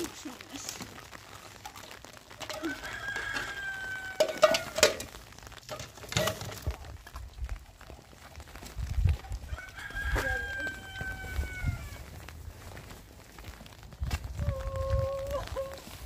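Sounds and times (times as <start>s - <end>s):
rooster crowing: 2.6s - 4.7s, 9.5s - 12.0s
metal pots and dishes clinking: 4.2s - 5.1s, 5.7s - 6.7s.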